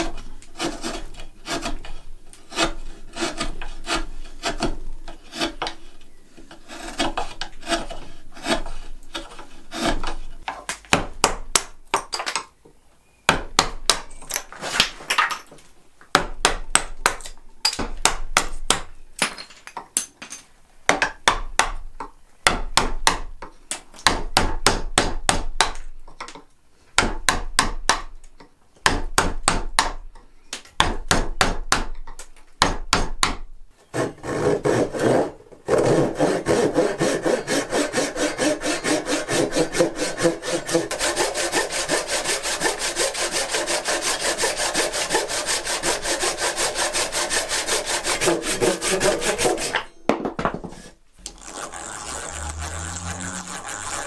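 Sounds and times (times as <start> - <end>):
wood rasp filing: 0.0 - 5.9, 6.5 - 10.4, 34.0 - 49.9, 50.7 - 54.0.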